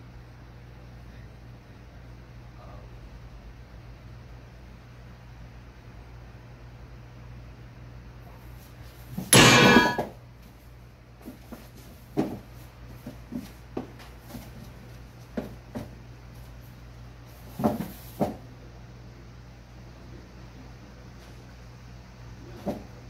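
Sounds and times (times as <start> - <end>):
cats scuffling: 10.4 - 18.4.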